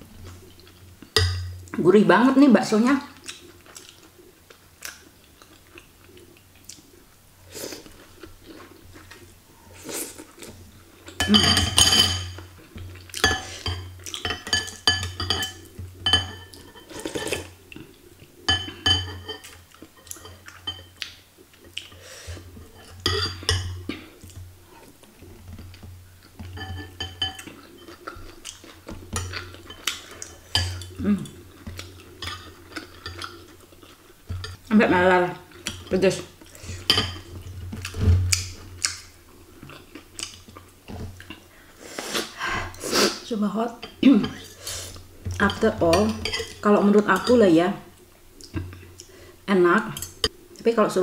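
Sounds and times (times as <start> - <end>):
chewing: 3.1 - 7.0, 19.4 - 34.6, 35.5 - 42.4, 48.4 - 49.2
cutlery clinking against glass bowl: 11.2 - 12.5, 13.2 - 17.5, 18.5 - 21.0, 22.8 - 23.8, 26.4 - 28.0, 45.4 - 47.4.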